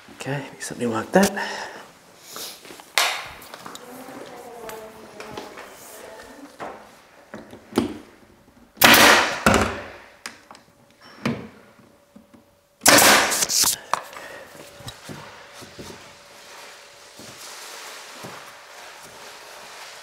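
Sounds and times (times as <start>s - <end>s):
nail gun shots: 8.8s - 10.0s, 12.8s - 13.8s.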